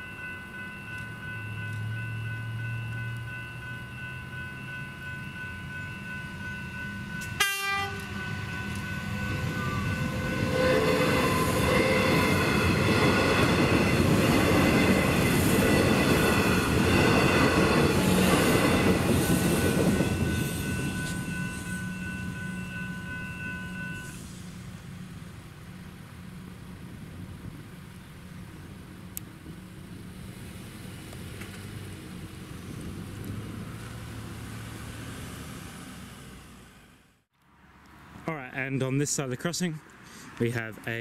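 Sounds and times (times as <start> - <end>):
level crossing bells ringing: 0.0 - 24.2
electric train passing: 0.0 - 37.9.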